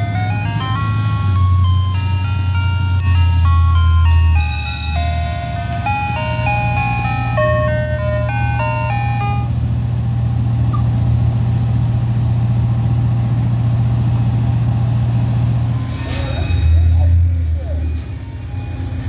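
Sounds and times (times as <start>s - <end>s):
ice cream truck chime tune: 0.0s - 9.6s, 15.4s - 19.0s.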